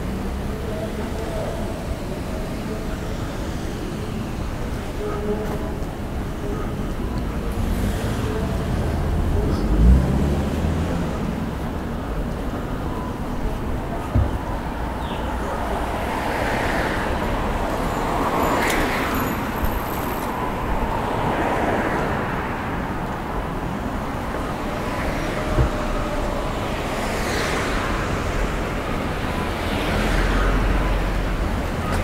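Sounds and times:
cars passing: 0:00.0 - 0:32.0
short thump: 0:14.1 - 0:14.5, 0:25.5 - 0:25.9.

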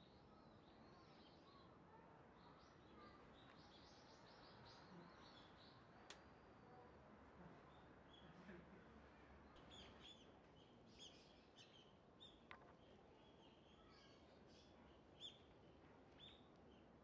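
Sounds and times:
faint sharp click: 0:06.1 - 0:06.3.

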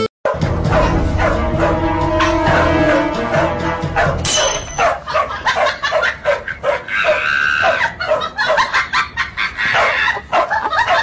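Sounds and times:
dog yapping: 0:00.3 - 0:02.8, 0:04.0 - 0:08.7, 0:09.7 - 0:11.0
dog high squeal: 0:06.8 - 0:08.0.

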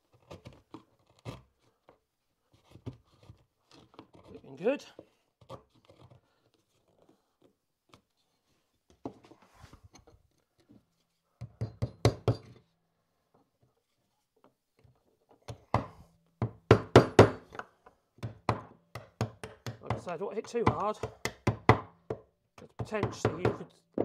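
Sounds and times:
chisel knocking into chipboard: 0:15.7 - 0:24.0.

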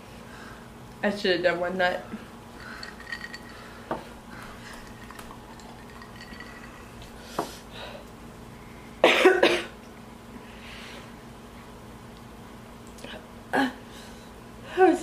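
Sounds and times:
glass clinking on tabletop: 0:02.8 - 0:04.0, 0:04.9 - 0:06.8.

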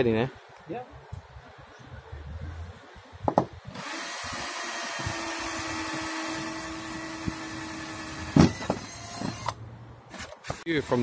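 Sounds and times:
knocks: 0:03.2 - 0:03.6
cordless drill whining: 0:03.7 - 0:10.4.

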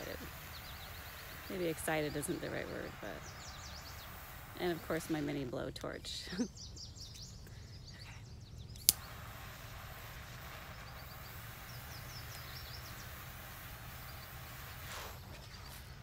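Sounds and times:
blowtorch flame hissing: 0:00.0 - 0:06.2, 0:08.8 - 0:16.0
blowtorch clicking alight: 0:08.7 - 0:16.0.

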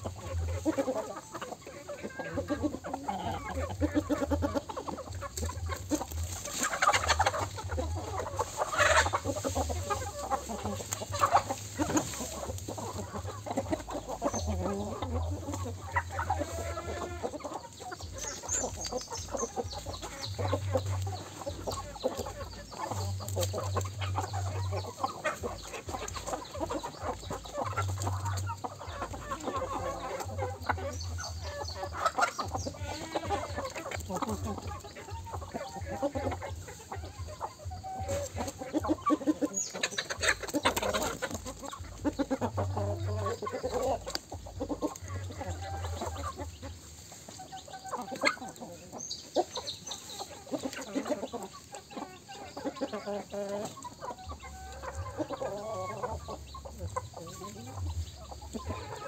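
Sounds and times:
chickens clucking: 0:00.0 - 0:59.0.

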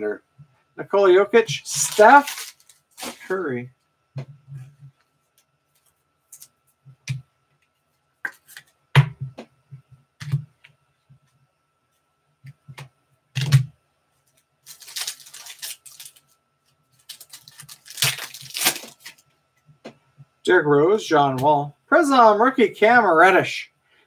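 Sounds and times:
wrapper crinkling as ripped open: 0:01.7 - 0:03.3, 0:14.6 - 0:16.2, 0:17.0 - 0:19.2.

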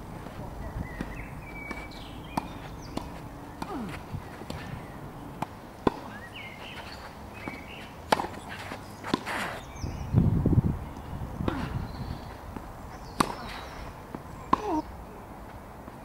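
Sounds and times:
tennis racket hitting ball: 0:07.4 - 0:09.6, 0:13.2 - 0:13.6.

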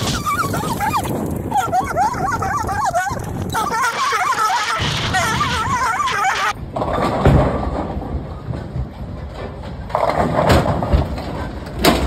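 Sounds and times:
bowling pins clattering: 0:04.8 - 0:12.0.

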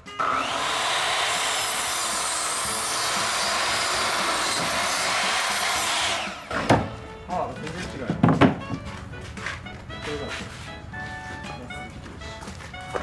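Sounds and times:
electric miter saw cutting wood: 0:00.0 - 0:07.0.

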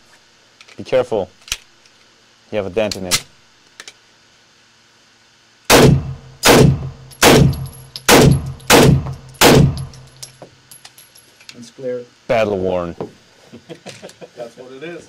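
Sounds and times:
suppressed gunshots: 0:05.7 - 0:09.9.

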